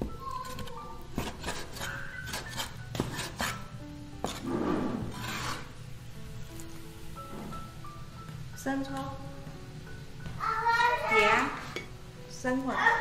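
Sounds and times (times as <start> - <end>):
blade scraping meat across board: 0.4 - 5.8.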